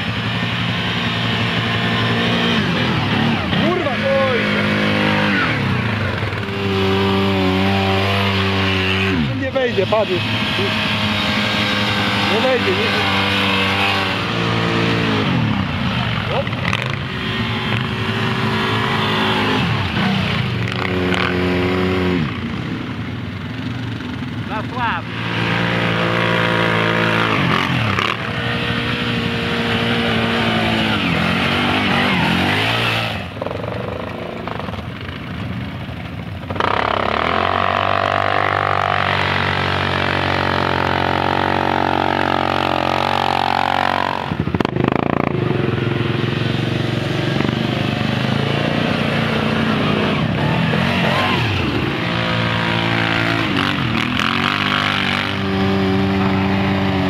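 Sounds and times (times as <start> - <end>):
quad bike engines revving: 0.0 - 57.0.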